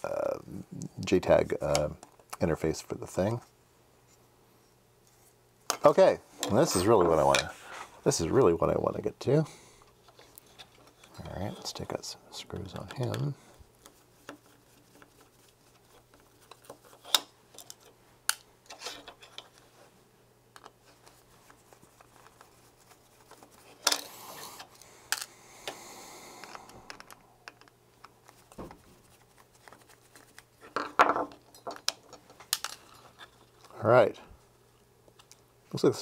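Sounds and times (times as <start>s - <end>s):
rustling: 20.6s - 24.8s.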